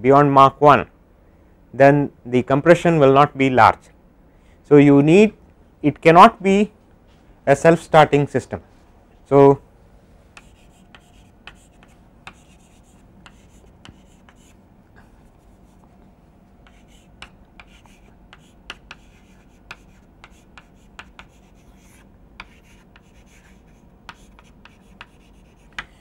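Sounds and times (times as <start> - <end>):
chalk tapping on board: 10.4 - 14.5, 16.6 - 26.0
chalk writing on blackboard: 10.4 - 14.6, 16.6 - 26.0.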